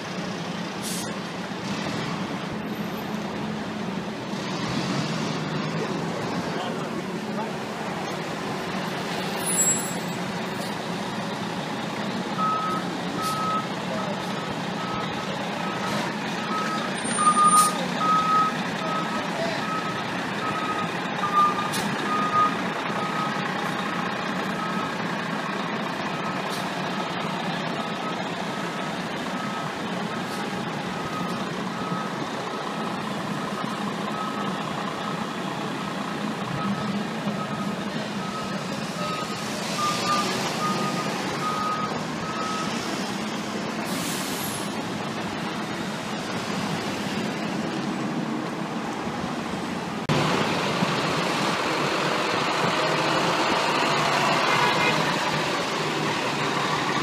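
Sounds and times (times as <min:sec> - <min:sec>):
diesel engine running: 0:00.0 - 0:57.0
reversing alarm beeping: 0:12.4 - 0:13.7, 0:14.4 - 0:23.4, 0:31.0 - 0:35.3, 0:36.5 - 0:42.8.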